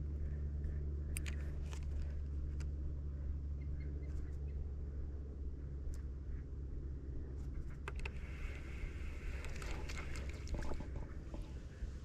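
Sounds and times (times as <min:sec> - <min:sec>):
steady low rumble: 0:00.0 - 0:12.0
light water splashes: 0:08.2 - 0:11.6.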